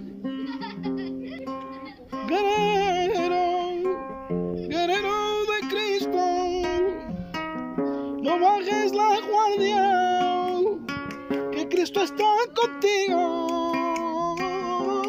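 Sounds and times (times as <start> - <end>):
acoustic guitar strumming: 0.0 - 15.0
man singing held notes: 2.1 - 4.0.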